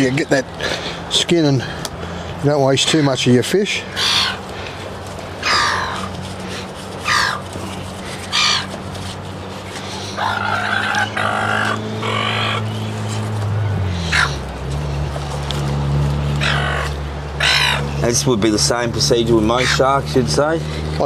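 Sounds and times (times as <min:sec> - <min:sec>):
gulls squawking: 0:02.8 - 0:08.8, 0:09.6 - 0:13.1, 0:13.7 - 0:14.5, 0:16.4 - 0:20.6.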